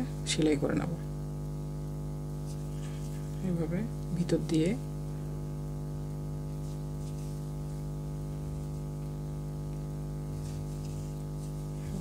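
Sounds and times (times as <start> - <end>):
electrical hum: 0.0 - 12.0
soft rustles: 2.4 - 5.3, 6.1 - 12.0.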